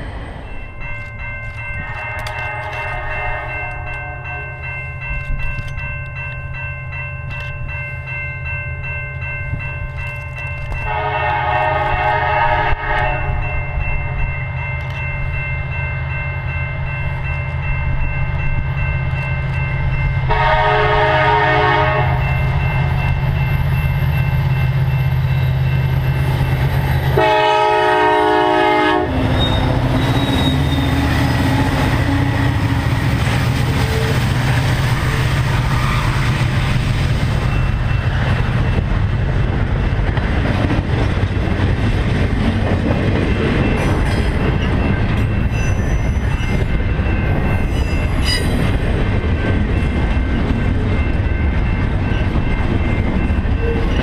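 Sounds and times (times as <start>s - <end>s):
crossing bell ringing: 0.0s - 54.0s
train rumbling over rails: 0.0s - 54.0s
locomotive air horn blasts: 1.8s - 4.3s, 10.9s - 13.4s, 20.3s - 22.3s, 27.2s - 30.7s.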